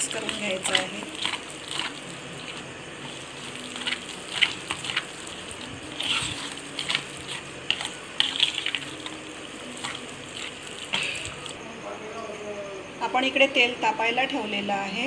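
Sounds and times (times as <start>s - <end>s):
spoon squelching thick mixture: 0.0s - 11.6s
spoon scraping a steel bowl: 0.1s - 11.6s.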